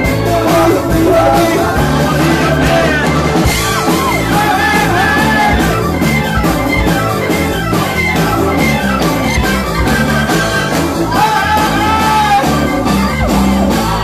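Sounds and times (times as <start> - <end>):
person singing: 0.0 - 5.9
live rock band playing: 0.0 - 14.0.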